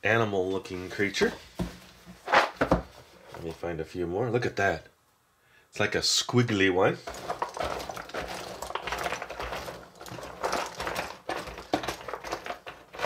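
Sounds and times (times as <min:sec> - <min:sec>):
wooden puzzle pieces clattering: 0:07.0 - 0:13.0.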